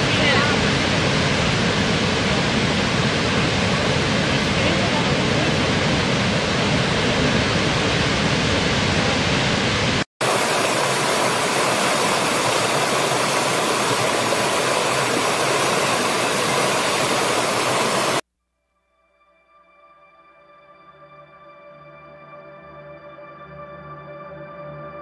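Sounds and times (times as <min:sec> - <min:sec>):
large waterfall rushing: 0:00.0 - 0:18.2
stream running over rocks: 0:10.2 - 0:18.2.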